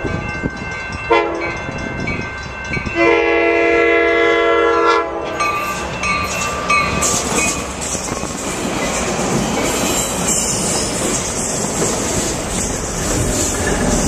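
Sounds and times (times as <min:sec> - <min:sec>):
train cars rumbling on rails: 0:00.0 - 0:14.0
train horn blasts: 0:01.1 - 0:01.6, 0:03.0 - 0:05.6.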